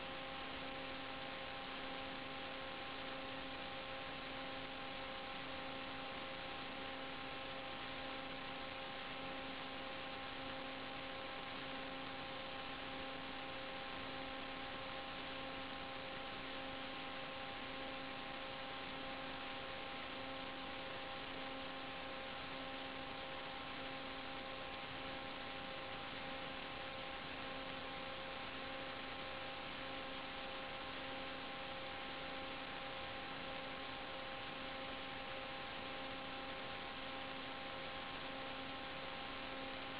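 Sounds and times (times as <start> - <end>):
constant electrical hum: 0.0 - 39.9
steady electrical hiss: 0.0 - 39.9.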